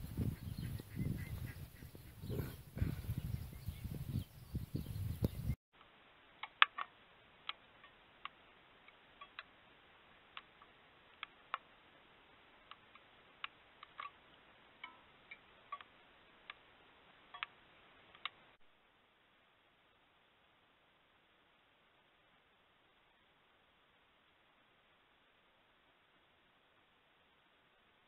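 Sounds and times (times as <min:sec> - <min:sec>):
faint steady hiss: 0:00.0 - 0:28.0
sharp ticks: 0:17.3 - 0:17.6.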